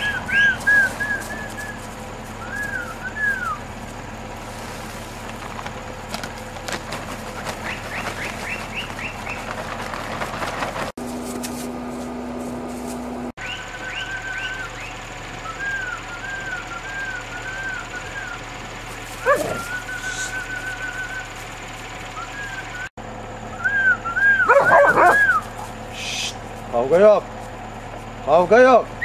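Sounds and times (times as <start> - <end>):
dogs whining: 0.0 - 3.7, 19.1 - 21.3, 23.6 - 25.9.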